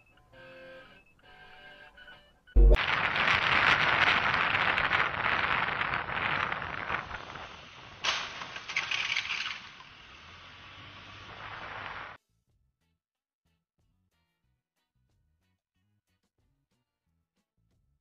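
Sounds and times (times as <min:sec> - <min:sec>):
hiss: 0:02.8 - 0:12.2
road traffic noise: 0:07.5 - 0:12.2.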